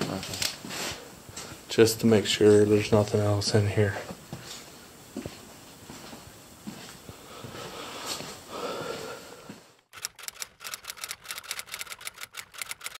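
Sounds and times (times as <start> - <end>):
typewriter keys clacking: 9.9 - 13.0.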